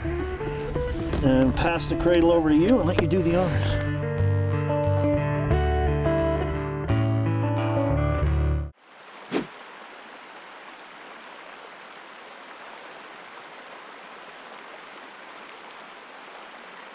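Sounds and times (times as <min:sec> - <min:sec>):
acoustic guitar music: 0:00.0 - 0:08.7
river running over rocks: 0:08.8 - 0:16.9.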